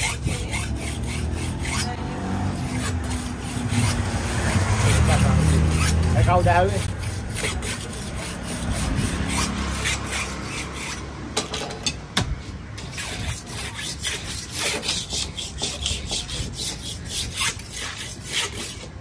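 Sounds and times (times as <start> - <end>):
knife scraping on sharpening stone: 0.0 - 2.0, 12.8 - 18.9.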